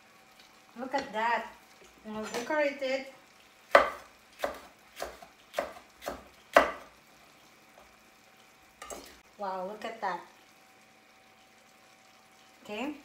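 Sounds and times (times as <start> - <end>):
knife chopping on wooden board: 3.7 - 6.9.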